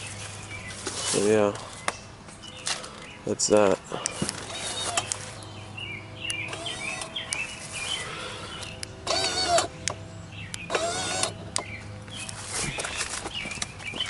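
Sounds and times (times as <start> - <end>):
birds chirping: 0.0 - 14.0
small electric motor whirring: 4.1 - 5.4, 6.5 - 12.8.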